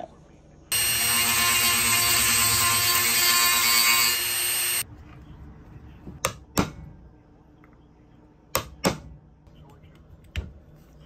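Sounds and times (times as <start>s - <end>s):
rotary tool grinding metal: 0.7s - 4.8s.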